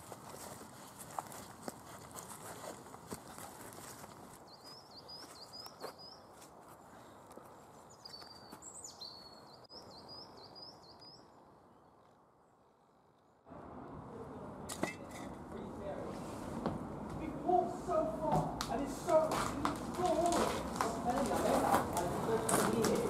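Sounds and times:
bird chirping: 4.4 - 14.0.

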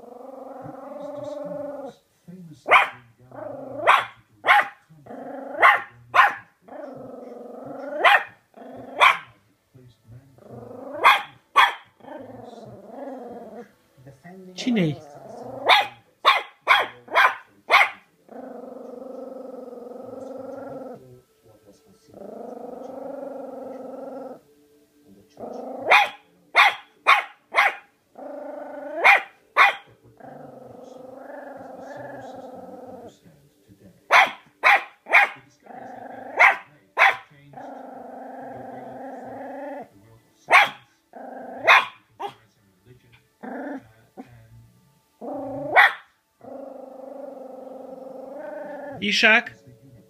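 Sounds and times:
small dog growling: 0.0 - 2.0, 2.6 - 9.4, 10.1 - 13.8, 14.6 - 21.2, 22.0 - 24.4, 25.2 - 33.4, 34.1 - 42.4, 43.1 - 49.0
small dog barking: 2.7 - 4.8, 5.5 - 6.9, 7.8 - 9.4, 10.9 - 12.0, 15.6 - 18.1, 25.7 - 27.9, 28.9 - 29.9, 34.1 - 37.3, 40.5 - 42.4, 45.4 - 46.1.

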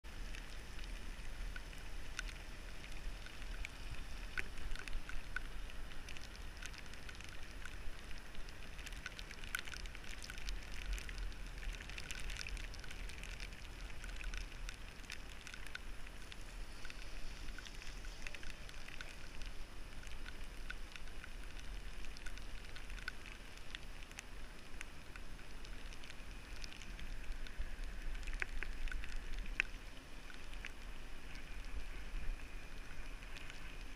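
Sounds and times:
bicycle rolling on wet asphalt: 0.0 - 33.9
raindrops ticking on camera: 0.0 - 33.9.

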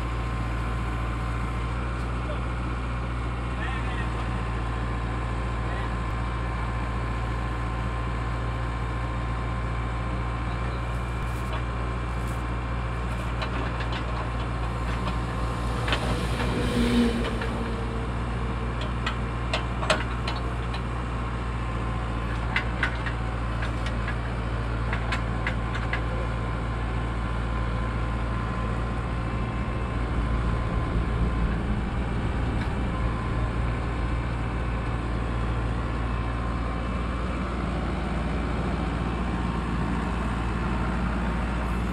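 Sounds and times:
diesel engine running: 0.0 - 41.9
sharp clicks and knocks: 13.1 - 16.4, 18.8 - 20.8, 22.3 - 26.1.

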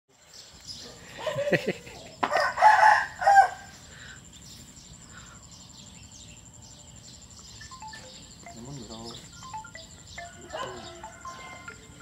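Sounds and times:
faint high chirping: 0.2 - 12.0
rooster crowing: 2.2 - 3.7, 10.2 - 12.0.

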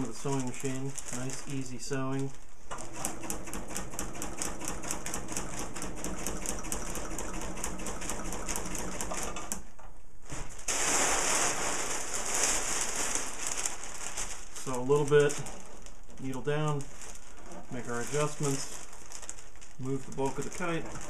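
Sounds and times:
fabric rustling: 0.0 - 2.7, 10.2 - 21.0
sewing machine stitching: 2.7 - 9.6, 20.2 - 21.0.

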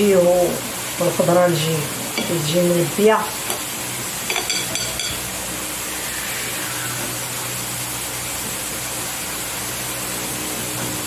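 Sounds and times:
food sizzling: 0.0 - 11.0
light clinks against a bowl: 4.3 - 5.2.

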